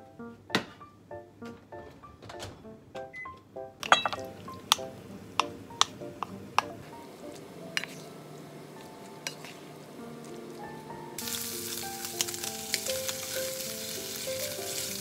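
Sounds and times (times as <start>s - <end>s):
soft background music: 0.0s - 15.0s
wooden spatula scraping a bowl: 7.8s - 8.2s, 9.2s - 9.7s.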